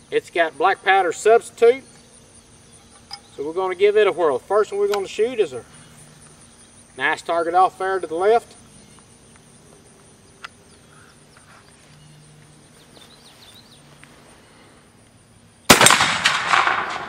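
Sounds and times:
rifle shot: 0:15.7 - 0:17.0.

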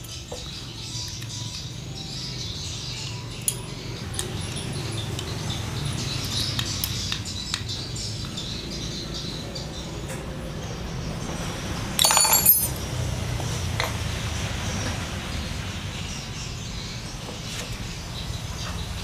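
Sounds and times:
metal clatter: 0:12.0 - 0:12.8.

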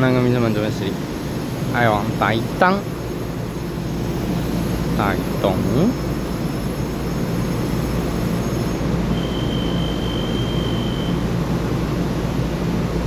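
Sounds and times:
electric train humming: 0:00.0 - 0:13.0
high beep: 0:09.1 - 0:11.2.

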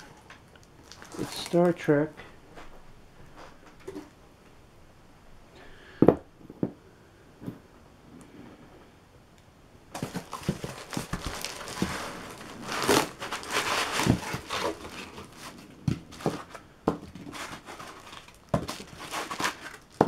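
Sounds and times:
plastic bag crinkling: 0:00.0 - 0:01.9, 0:09.9 - 0:20.0
cardboard and foam rustling: 0:00.8 - 0:01.9, 0:09.9 - 0:20.0.

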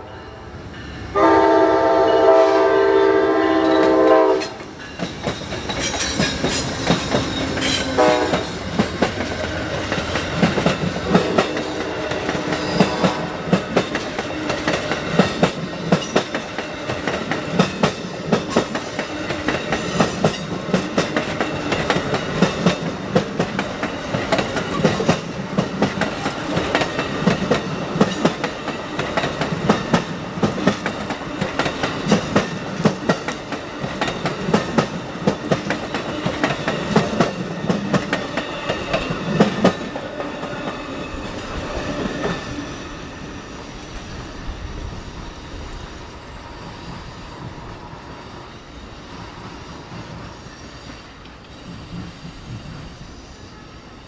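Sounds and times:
receding train rumble: 0:00.0 - 0:54.0
train wheels clattering over rail joints: 0:03.9 - 0:42.6.

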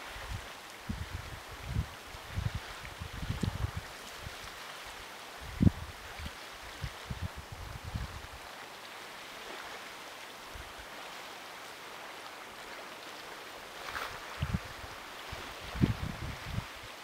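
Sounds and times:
wind buffets on microphone: 0:00.0 - 0:04.5, 0:05.3 - 0:08.4, 0:13.9 - 0:17.0
water washing along shoreline: 0:00.0 - 0:17.0.

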